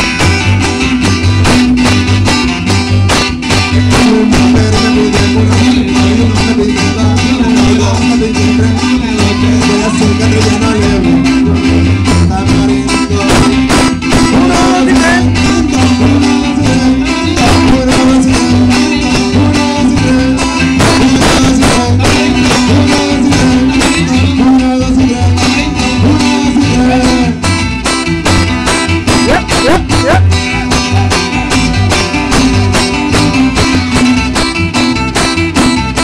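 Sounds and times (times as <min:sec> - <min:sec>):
electric bass: 0:00.0 - 0:36.0
strummed guitars: 0:00.0 - 0:36.0.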